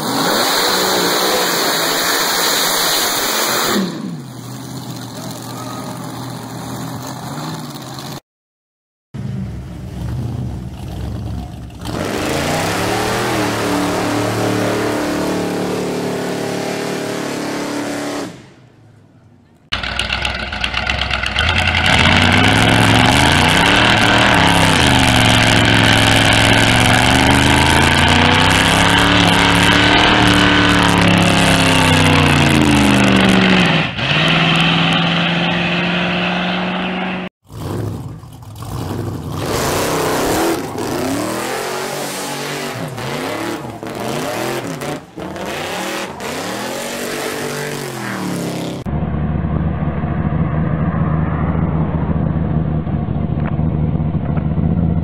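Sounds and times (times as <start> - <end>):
hot rod engines revving: 0.0 - 8.2, 9.2 - 55.0
engine cracks: 18.8 - 33.5, 37.4 - 41.5
spinning tyres hissing: 19.8 - 54.8.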